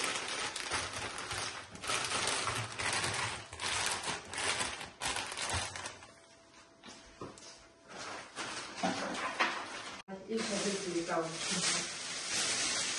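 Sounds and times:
plastic bags crinkling: 0.0s - 6.1s, 9.7s - 12.9s.

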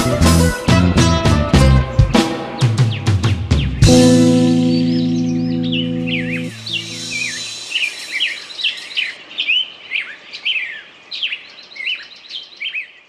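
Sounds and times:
birds chirping and calling: 1.7s - 13.0s
guitar chord: 3.8s - 7.5s.

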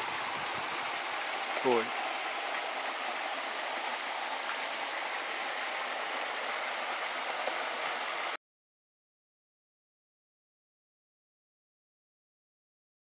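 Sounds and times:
stream flowing over rocks: 0.0s - 8.4s.

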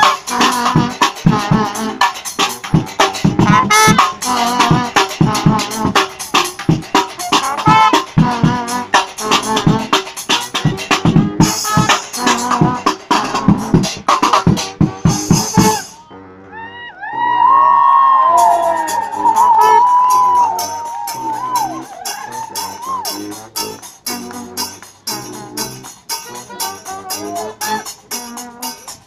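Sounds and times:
funk brass band playing: 0.0s - 16.6s, 17.2s - 29.0s.

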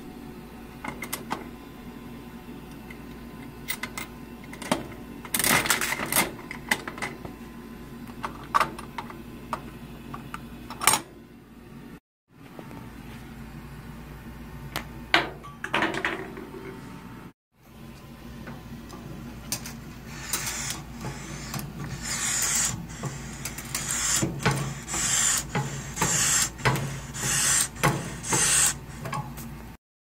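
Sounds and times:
balloon pump air strokes: 20.0s - 29.0s.

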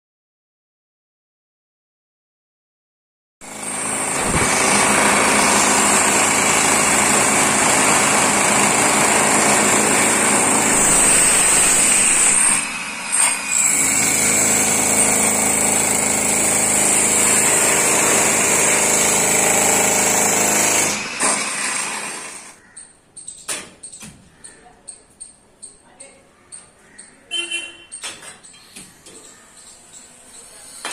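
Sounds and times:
demolition breaker hammering concrete: 3.4s - 22.3s.

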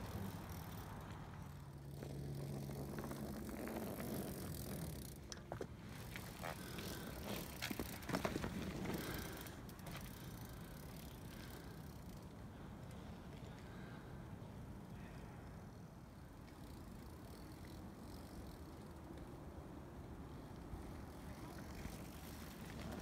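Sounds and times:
freewheel hub clicking: 0.0s - 12.4s
tyre rolling over dirt: 2.0s - 10.2s, 21.7s - 23.0s.

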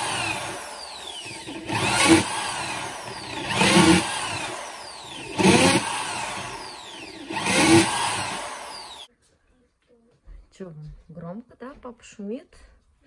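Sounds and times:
electric drill boring into wood: 0.0s - 9.1s.

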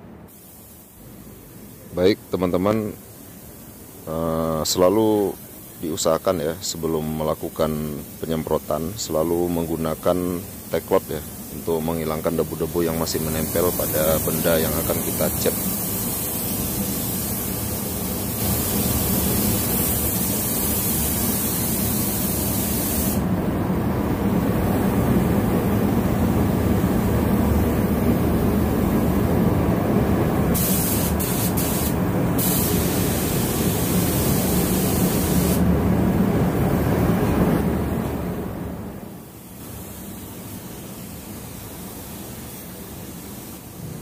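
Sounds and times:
air spray gun hissing: 0.2s - 23.3s, 30.0s - 35.7s, 39.2s - 43.9s.

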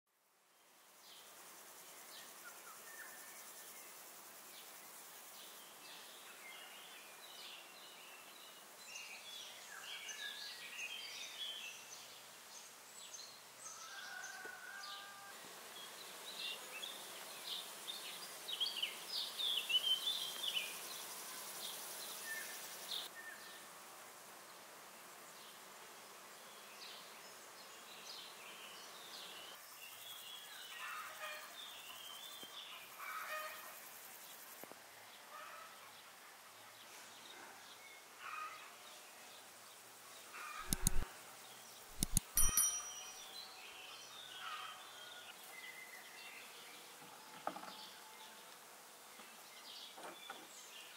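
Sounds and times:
faint high hiss: 0.2s - 47.0s
birds chirping: 40.4s - 41.1s, 41.8s - 44.6s.

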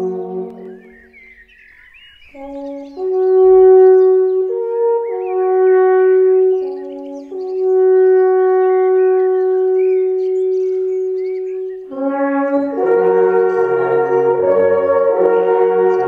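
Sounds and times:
brass chord: 0.0s - 1.0s, 2.4s - 16.0s
held horn notes: 0.0s - 1.0s, 11.8s - 16.0s.

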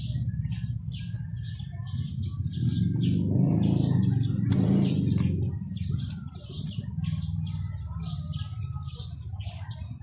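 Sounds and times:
small birds chirping: 0.0s - 10.0s
sharp clicks: 4.4s - 6.8s.

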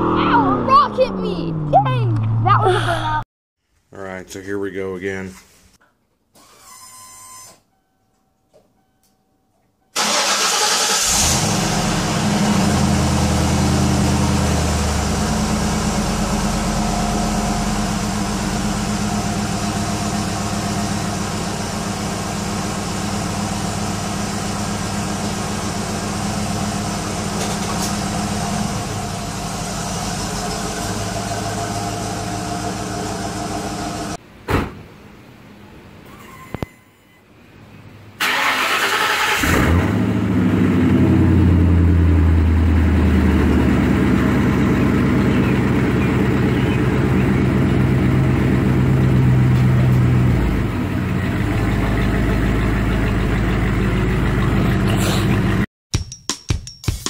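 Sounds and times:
loud car engine through exhaust: 11.0s - 34.2s, 39.4s - 55.7s.

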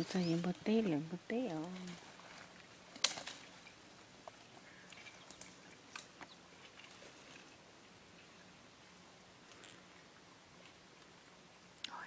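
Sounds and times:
twigs and leaves crackling underfoot: 0.0s - 7.6s
twig snapping: 3.0s - 3.4s.

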